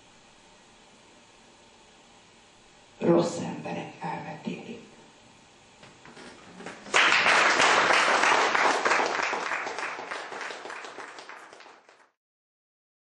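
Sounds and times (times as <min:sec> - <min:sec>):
audience applauding: 0:06.2 - 0:12.2.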